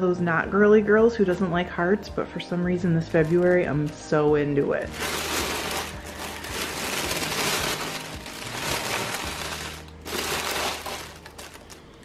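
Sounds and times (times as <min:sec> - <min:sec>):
tissue paper crinkling: 0:03.1 - 0:12.0.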